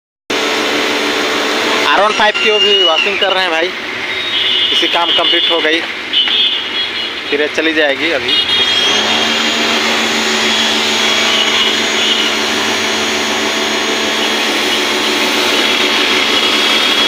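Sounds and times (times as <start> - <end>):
pump motor running: 0.3 - 4.9, 8.3 - 17.0
spray hissing: 8.6 - 17.0.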